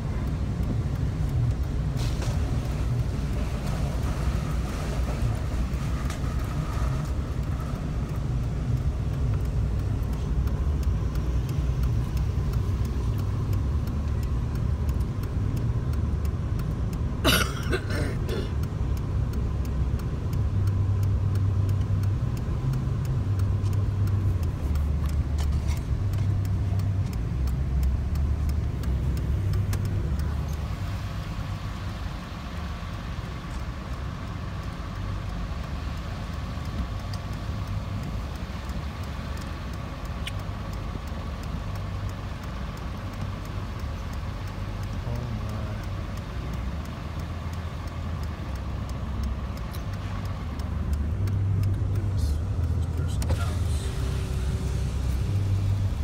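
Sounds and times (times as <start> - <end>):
engine and road rumble: 0.0 - 56.0.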